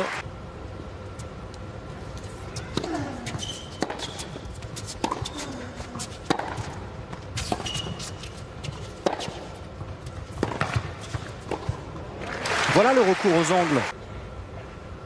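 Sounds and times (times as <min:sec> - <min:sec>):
murmur of arena crowd: 0:00.0 - 0:00.2, 0:12.0 - 0:15.0
shoes squeaking on court: 0:02.2 - 0:11.8
racket striking tennis ball: 0:02.7 - 0:12.1.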